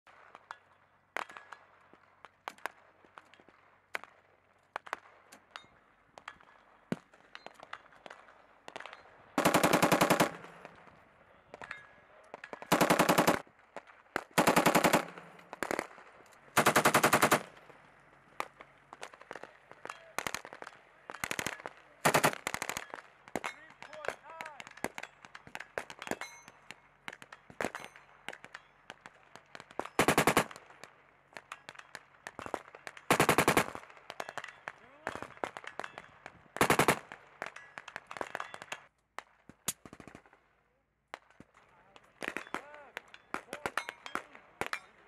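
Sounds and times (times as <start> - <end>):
machine gun automatic bursts: 9.4 - 10.7, 12.6 - 13.4, 14.2 - 15.9, 16.5 - 17.6, 21.2 - 22.9, 30.0 - 30.6, 33.1 - 33.8, 36.6 - 37.2.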